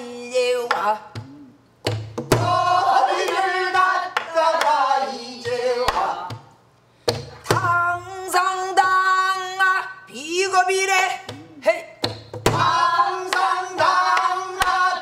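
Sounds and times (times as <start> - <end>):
barrel drum strikes: 1.8 - 2.7, 12.0 - 12.8.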